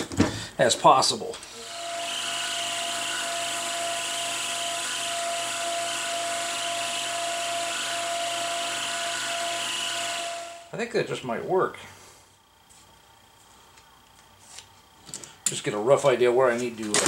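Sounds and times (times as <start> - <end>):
milling machine whining: 1.3 - 10.8.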